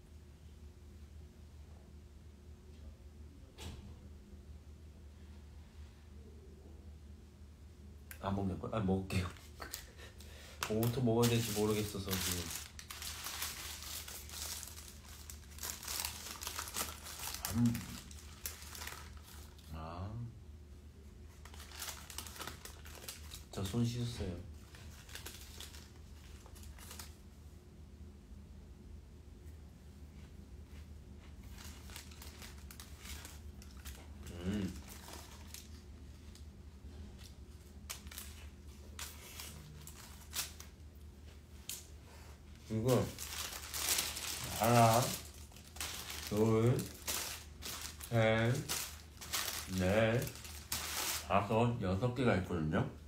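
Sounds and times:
low steady hum: 0:00.0 - 0:53.0
paper wrapper crinkling: 0:09.2 - 0:19.7, 0:21.2 - 0:27.3, 0:31.4 - 0:51.6
taco crunching: 0:09.3 - 0:19.7, 0:21.3 - 0:23.5, 0:31.4 - 0:40.8.

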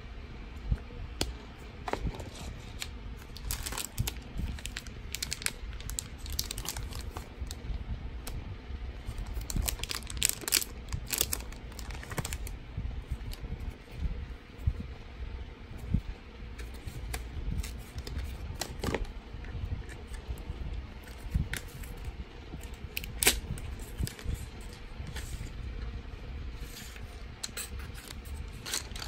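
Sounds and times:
plastic packaging crinkling: 0:02.0 - 0:07.6, 0:09.1 - 0:12.5, 0:26.8 - 0:29.0.

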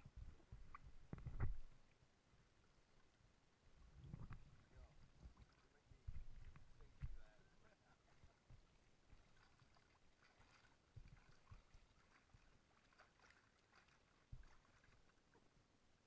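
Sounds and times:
soft low bumps: 0:00.0 - 0:01.9, 0:03.8 - 0:07.4
water lapping against kayak: 0:02.5 - 0:15.7.

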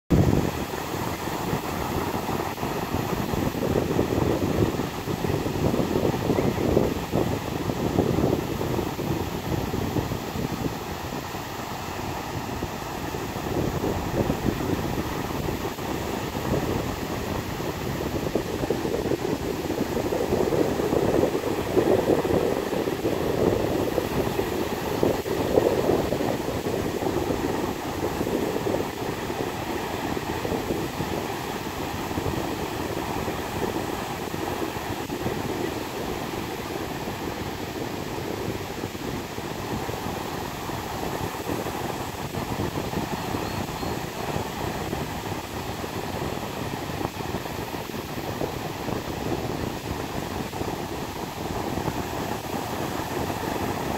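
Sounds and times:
ocean surf breaking on beach: 0:00.1 - 0:53.9.

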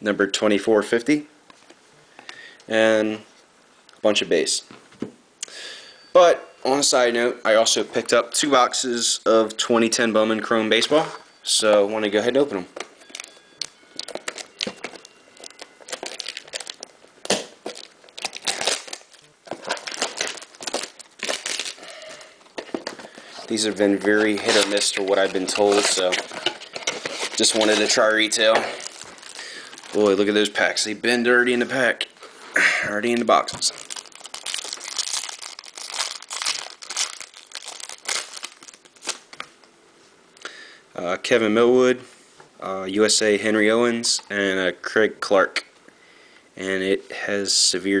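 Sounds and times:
plastic shrink-wrap crinkling: 0:13.0 - 0:30.9, 0:33.1 - 0:39.5.

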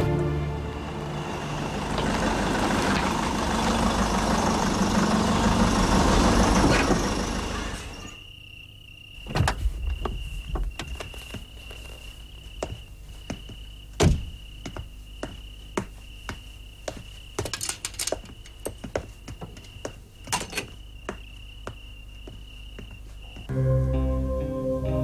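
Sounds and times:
car engine running: 0:00.0 - 0:08.1
crickets chirping: 0:00.1 - 0:25.0.

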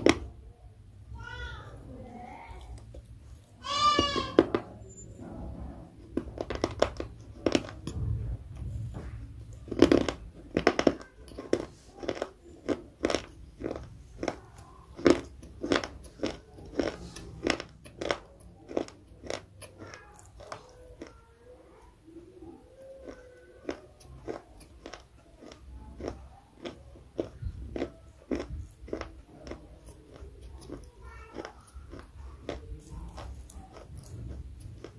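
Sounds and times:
mouth crunching and chewing: 0:05.9 - 0:34.9.

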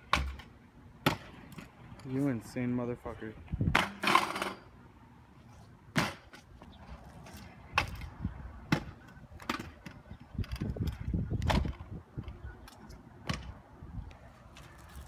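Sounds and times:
scooter clacking on concrete: 0:08.7 - 0:13.5.

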